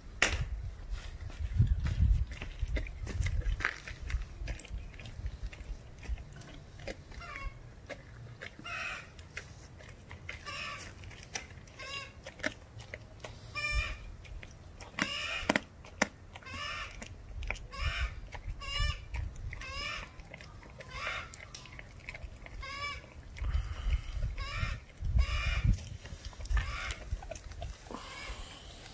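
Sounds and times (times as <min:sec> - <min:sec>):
puppy crunching bone: 0:02.0 - 0:28.9.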